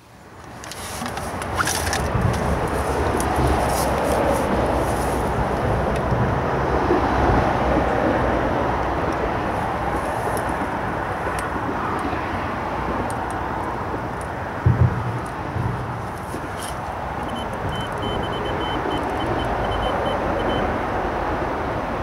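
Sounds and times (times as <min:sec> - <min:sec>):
road traffic drone: 0:00.0 - 0:22.0.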